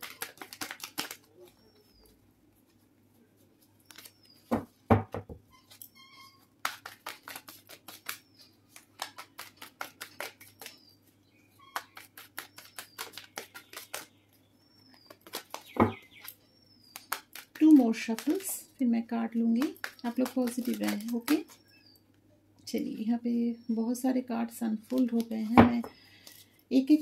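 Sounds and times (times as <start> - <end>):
cards being shuffled: 0.0 - 1.6, 3.6 - 4.5, 6.6 - 10.8, 11.8 - 14.2, 15.1 - 18.6, 19.5 - 21.6, 24.8 - 25.6.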